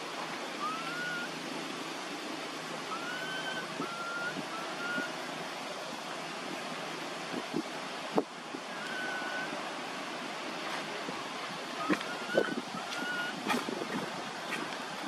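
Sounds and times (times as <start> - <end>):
baby monkey coo calls: 0.6 - 1.3.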